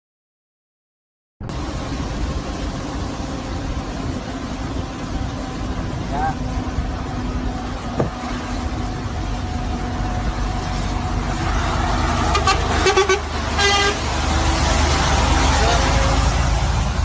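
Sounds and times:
truck engine and tyre drone: 0:01.4 - 0:17.0
vehicle horn blasts: 0:12.3 - 0:14.0.

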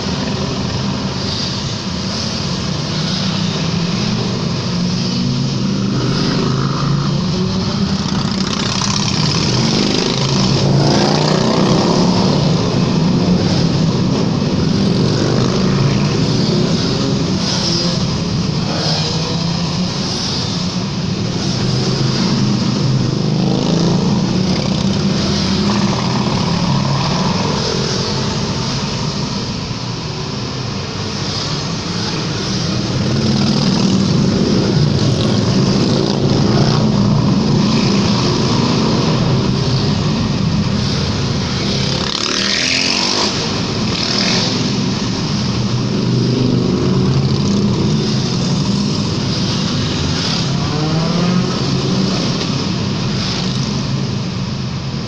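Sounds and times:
motorcycles passing in tunnel: 0:00.0 - 0:55.0
motorcycle engine revving: 0:02.8 - 0:29.5, 0:31.5 - 0:54.2.

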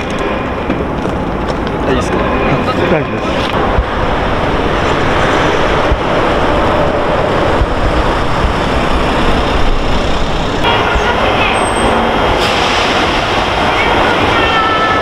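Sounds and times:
steady low rumble: 0:00.0 - 0:14.4
vehicle engines and road noise: 0:00.0 - 0:15.0.

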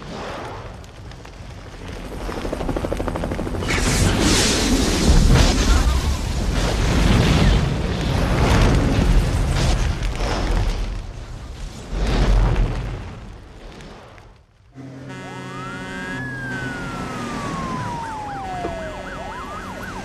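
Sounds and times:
fire roaring: 0:00.0 - 0:20.0
helicopter rotor chop: 0:01.6 - 0:06.1, 0:15.6 - 0:20.0.

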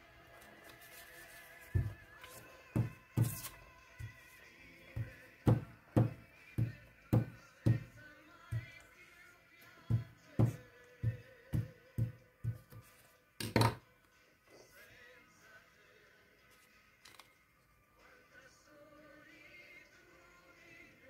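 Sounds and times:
soft background music: 0:00.0 - 0:21.0.

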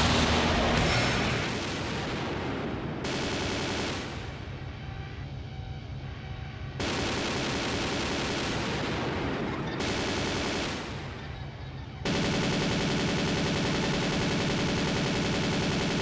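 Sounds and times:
distorted electronic music: 0:00.0 - 0:02.1.

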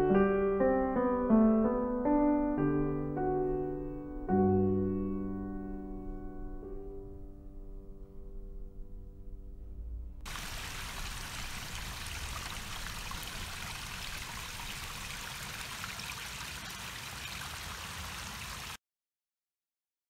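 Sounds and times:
water trickling over stones: 0:10.3 - 0:18.8.

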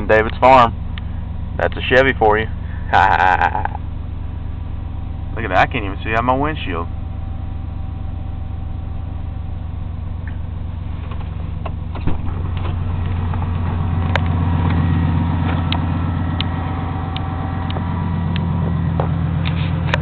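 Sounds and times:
truck engine idling: 0:00.0 - 0:20.0
sharp clunk: 0:11.0 - 0:12.8.

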